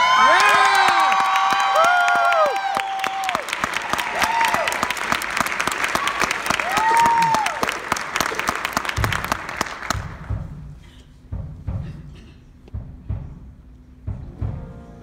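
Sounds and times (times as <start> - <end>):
whistles and whoops: 0.0 - 3.4
audience applauding: 0.0 - 10.3
low drum beats: 8.9 - 15.0.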